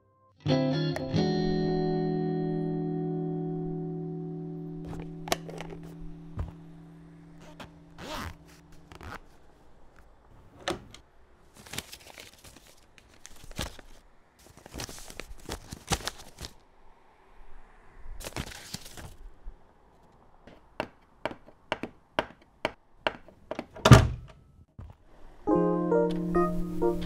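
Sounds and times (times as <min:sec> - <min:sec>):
footsteps on hard floor: 0:06.4 - 0:06.6
paper rustling: 0:11.5 - 0:16.6, 0:18.2 - 0:19.2.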